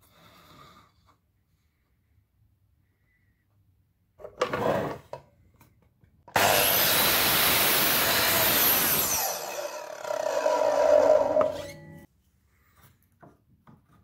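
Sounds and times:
mitre saw cutting wood: 0:06.3 - 0:11.9.

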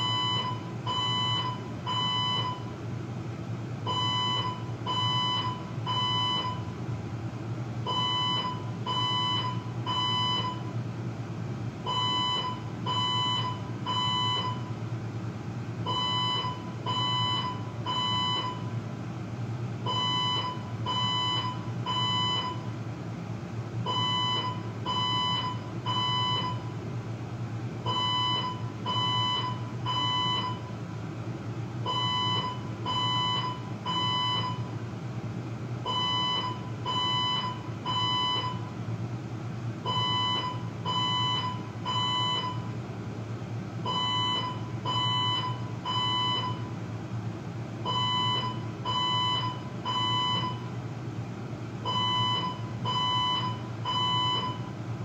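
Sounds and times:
fire alarm beeps: 0:00.0 - 0:02.7, 0:03.9 - 0:06.8, 0:07.9 - 0:10.7, 0:11.9 - 0:14.7, 0:15.9 - 0:18.7, 0:19.9 - 0:22.7, 0:23.9 - 0:26.7, 0:27.9 - 0:30.7, 0:31.9 - 0:34.7, 0:35.9 - 0:38.7, 0:39.9 - 0:42.8, 0:43.9 - 0:46.7, 0:47.9 - 0:50.7, 0:51.9 - 0:54.7
steady low hum: 0:00.0 - 0:55.0.

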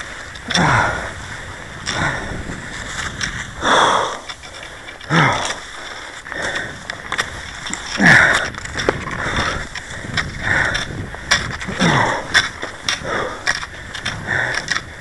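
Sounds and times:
person breathing hard: 0:00.0 - 0:02.9, 0:03.5 - 0:15.0
skis gliding hiss: 0:00.0 - 0:07.9
sharp clicks: 0:06.5 - 0:14.9.

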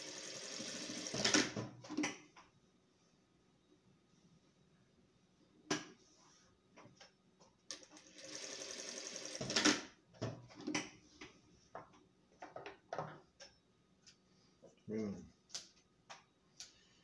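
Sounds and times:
sewing machine stitching: 0:00.0 - 0:01.6, 0:07.8 - 0:09.9.

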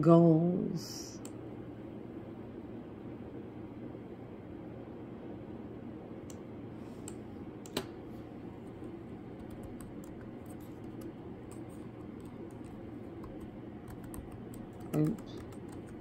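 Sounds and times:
steady low hum: 0:00.0 - 0:16.0
laptop keyboard keystrokes: 0:09.4 - 0:16.0.

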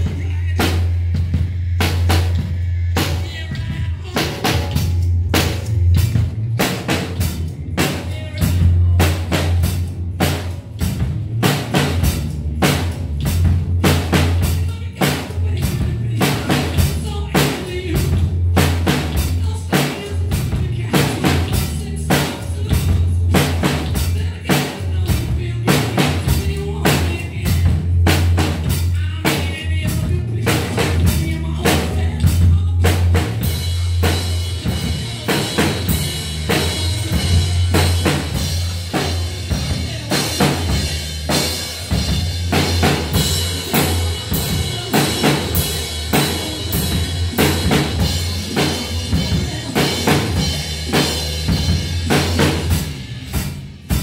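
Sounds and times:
drum kit rock beat: 0:00.0 - 0:54.0.

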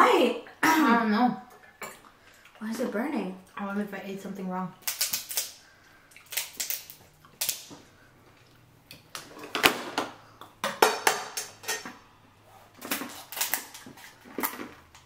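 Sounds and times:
shells cracking and clattering: 0:04.8 - 0:07.8, 0:12.8 - 0:15.0.

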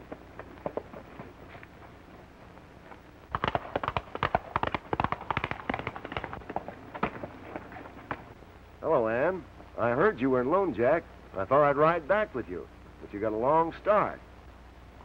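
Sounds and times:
horse hooves on dirt: 0:00.0 - 0:08.4.

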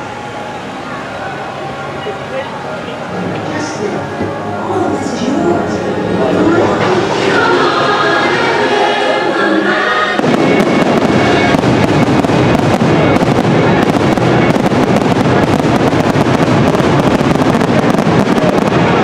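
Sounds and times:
show music with singing: 0:06.3 - 0:10.4
fireworks crackling and popping: 0:10.2 - 0:19.0.

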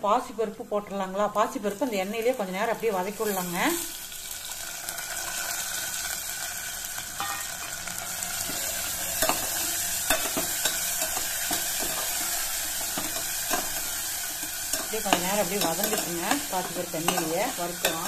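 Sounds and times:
lentils sizzling in oil: 0:00.0 - 0:18.0
metal spoon stirring pot: 0:09.2 - 0:18.0.

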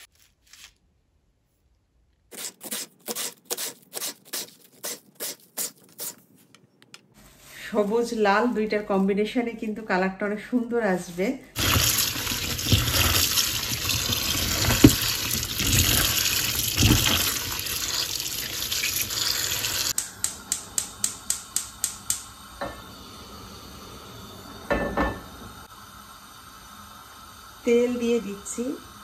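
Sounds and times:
hand swishing vegetables in water: 0:11.1 - 0:19.5
tap water running: 0:11.6 - 0:22.9.

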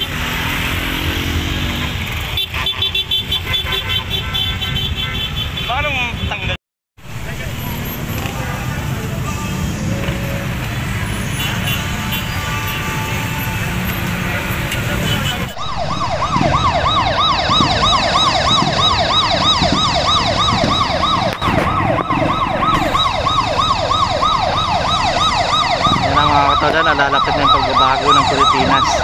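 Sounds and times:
motorcycle traffic noise: 0:00.0 - 0:29.0
vehicle siren wailing: 0:07.0 - 0:29.0.

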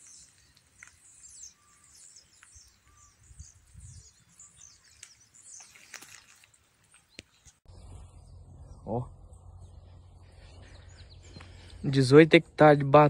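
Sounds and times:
small birds chirping: 0:00.0 - 0:13.0
low rumble on microphone: 0:07.7 - 0:12.6.

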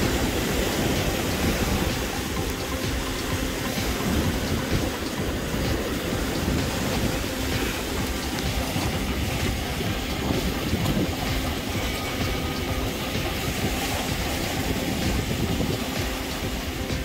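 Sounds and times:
surf breaking through rocks: 0:00.0 - 0:17.0
wind rumble on microphone: 0:00.0 - 0:17.0.

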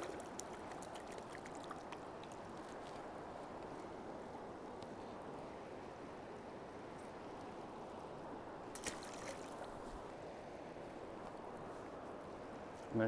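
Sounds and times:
river water rushing: 0:08.0 - 0:11.2.

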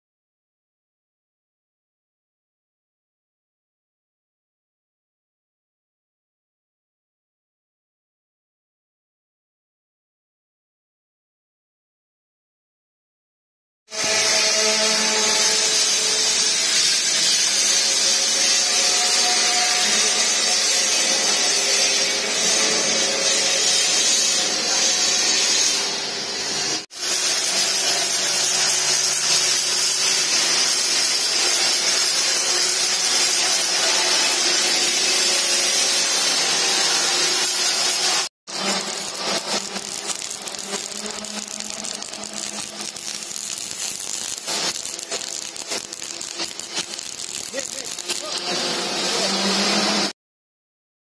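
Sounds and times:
welding arc crackling: 0:13.9 - 0:50.1.

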